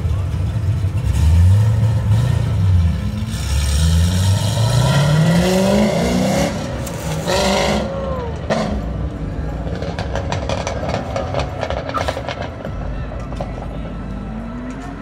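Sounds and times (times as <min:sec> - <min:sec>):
car engine revving: 0:00.1 - 0:15.0.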